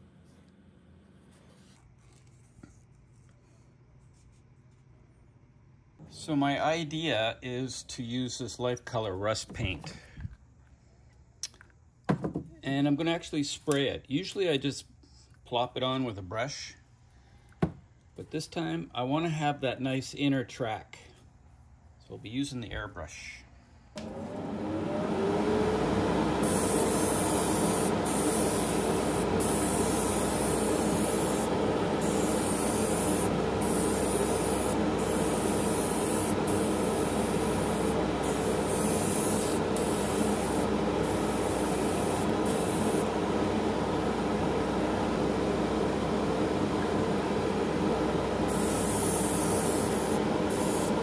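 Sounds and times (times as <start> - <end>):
extraction fan humming: 24.0 - 51.0
airbrush hissing bursts: 26.4 - 43.1, 48.5 - 51.0.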